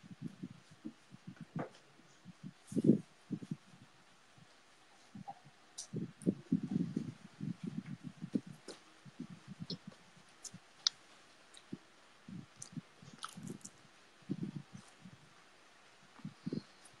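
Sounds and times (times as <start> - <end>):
soft thuds and rustles of hands: 0.6 - 1.9.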